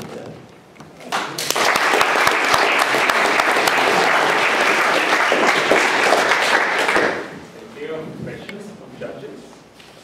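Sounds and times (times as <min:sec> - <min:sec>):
audience applause: 0:01.1 - 0:07.4.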